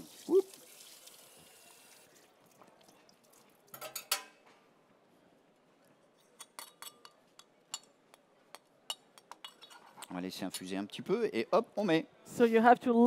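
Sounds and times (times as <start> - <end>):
dishes and utensils clinking: 3.7 - 4.4, 6.3 - 10.8.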